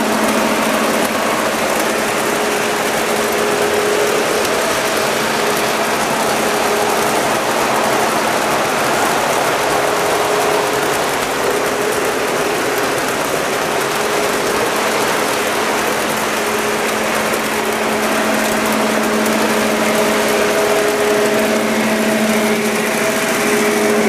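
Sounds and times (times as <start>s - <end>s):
model train wheels rumbling: 0.0s - 24.0s
steady hum: 0.0s - 24.0s.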